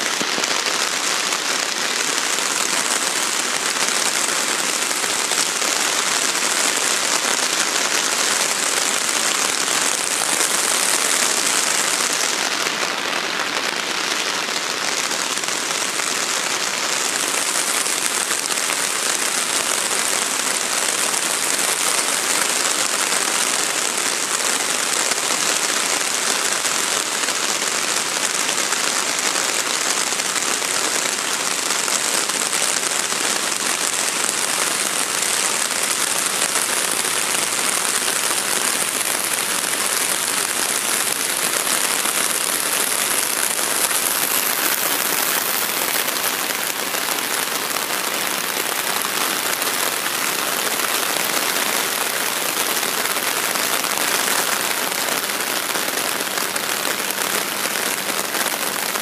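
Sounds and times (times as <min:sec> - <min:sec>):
heavy rain falling: 0:00.0 - 0:59.0.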